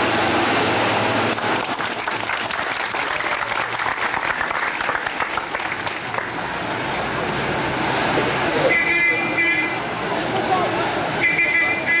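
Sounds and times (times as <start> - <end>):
crowd clapping: 1.2 - 6.5.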